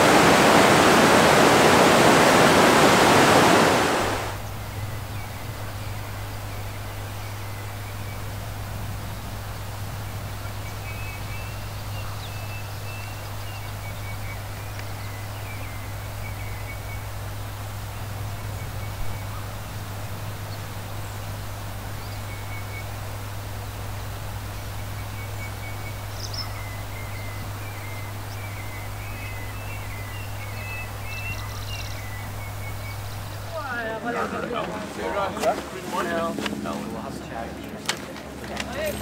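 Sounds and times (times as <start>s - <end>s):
waterfall rushing: 0.0s - 4.4s
birds chirping and trilling: 0.6s - 35.2s.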